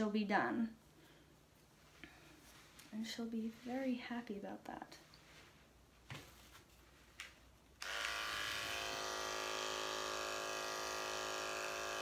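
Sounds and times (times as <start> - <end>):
electric clippers buzzing: 7.8 - 12.0.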